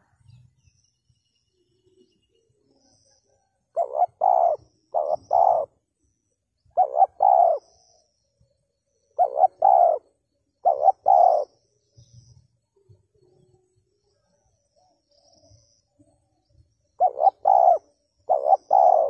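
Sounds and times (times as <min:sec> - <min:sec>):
dove cooing: 0:03.7 - 0:05.8, 0:06.7 - 0:07.8, 0:09.2 - 0:11.6, 0:17.0 - 0:19.0.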